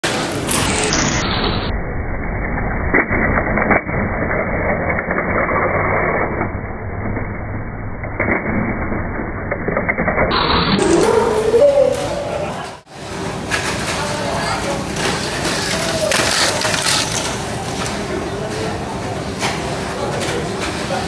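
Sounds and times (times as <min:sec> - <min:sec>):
toy car wheels rattling on track: 0:13.5 - 0:18.0
toy cars clacking on walls: 0:13.5 - 0:18.0.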